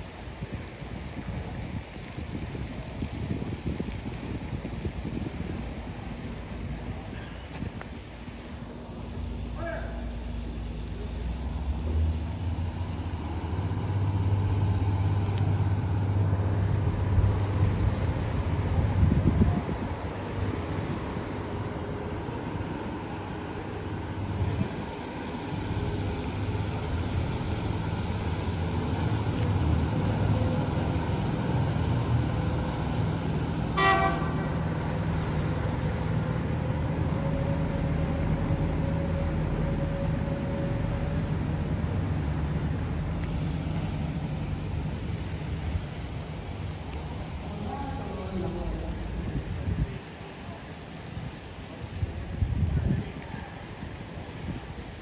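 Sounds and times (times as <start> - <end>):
boat engine droning: 0.0 - 52.4
short horn toot: 33.8 - 34.6.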